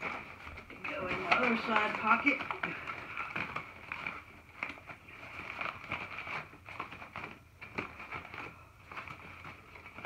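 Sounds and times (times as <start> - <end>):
fabric rustling and crinkling: 0.0 - 10.0.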